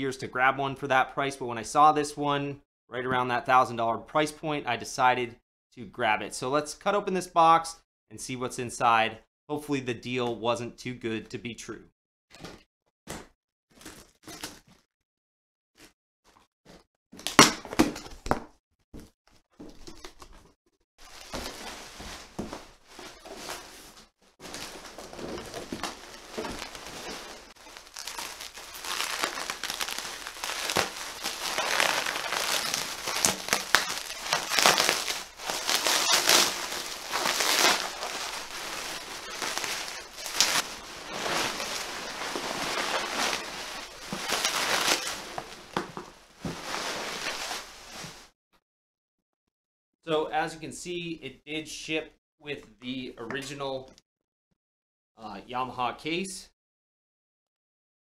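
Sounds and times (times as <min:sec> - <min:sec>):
bubble wrap crinkling: 0:21.0 - 0:48.3
cardboard box ripping: 0:23.1 - 0:45.8.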